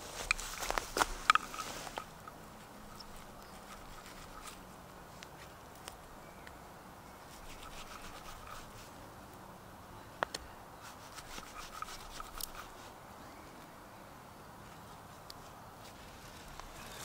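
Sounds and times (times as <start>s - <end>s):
knife scraping through fungus: 2.9s - 4.6s, 7.3s - 8.9s, 10.8s - 12.9s.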